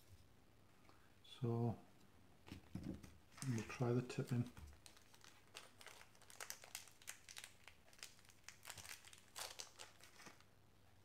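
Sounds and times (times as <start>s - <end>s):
plastic bag crinkling: 3.3s - 10.5s.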